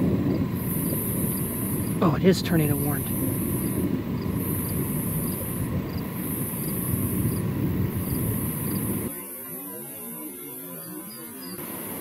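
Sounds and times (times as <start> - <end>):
vehicle rumble: 0.0 - 9.1
high-pitched insect chorus: 0.0 - 12.0.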